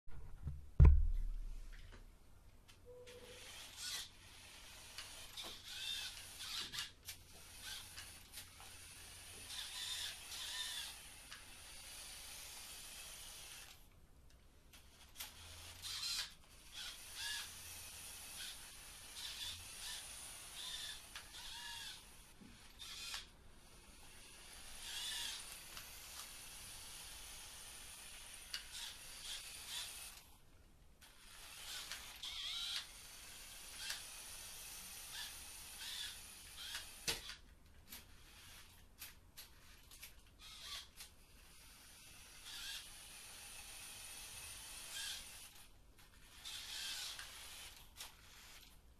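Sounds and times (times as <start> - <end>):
low thump: 0.1 - 1.8
toy motor and gears whining: 3.1 - 13.9, 14.7 - 30.4, 31.0 - 48.9.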